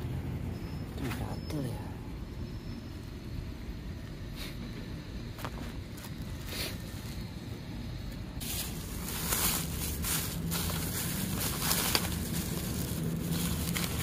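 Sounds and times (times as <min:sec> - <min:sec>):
plastic bag rustling: 0:08.4 - 0:14.0.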